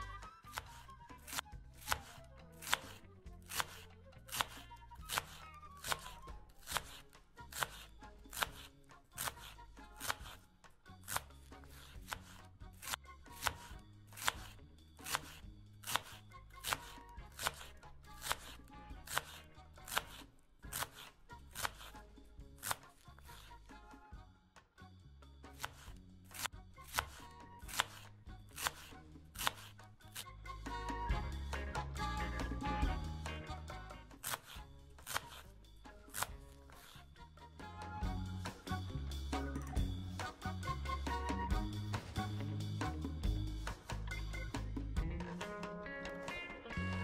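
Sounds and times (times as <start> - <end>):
knife chopping cabbage: 0.0 - 23.8, 25.5 - 38.7
soft background music: 0.0 - 47.0.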